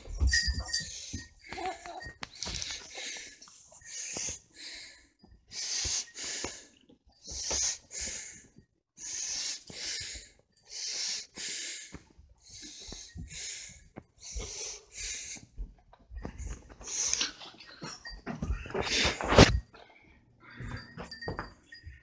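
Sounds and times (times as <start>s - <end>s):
hissy breathing at microphone: 2.3s - 15.6s.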